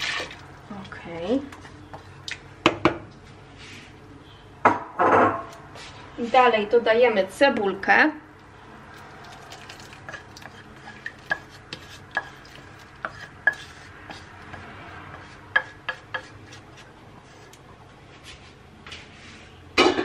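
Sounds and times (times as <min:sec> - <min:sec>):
utensil scraping metal pan: 0:09.8 - 0:17.6.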